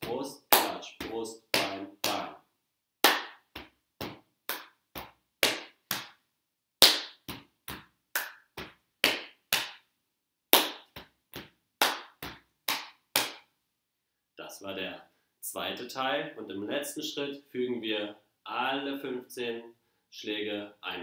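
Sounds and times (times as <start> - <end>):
hand claps: 0.0 - 2.3, 3.0 - 6.2, 6.8 - 9.9, 10.5 - 13.5
slaps on chest and thighs: 0.0 - 2.4, 3.0 - 6.2, 6.8 - 9.9, 10.5 - 13.5.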